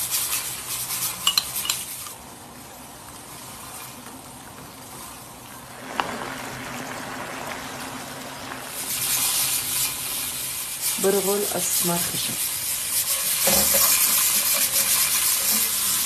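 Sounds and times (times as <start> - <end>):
broth bubbling at a boil: 2.6 - 11.1.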